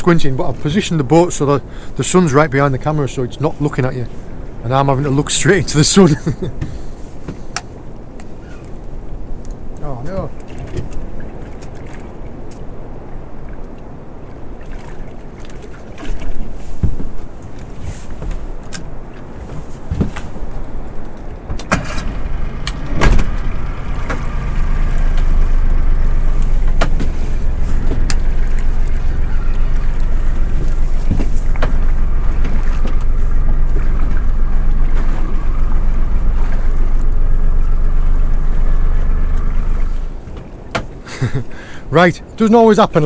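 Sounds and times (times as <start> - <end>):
outboard motor running: 20.6 - 41.8
sharp knocks and clicks: 26.4 - 35.3.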